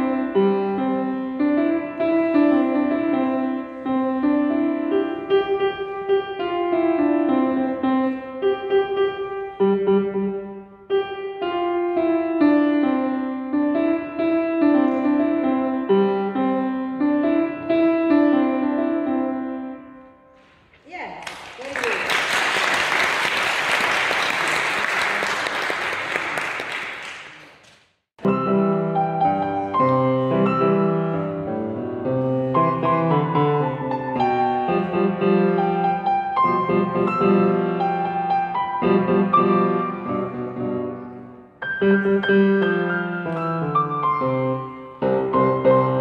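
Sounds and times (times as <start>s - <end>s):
grand piano playing: 0.0s - 20.4s, 28.2s - 46.0s
audience applauding: 21.2s - 27.7s.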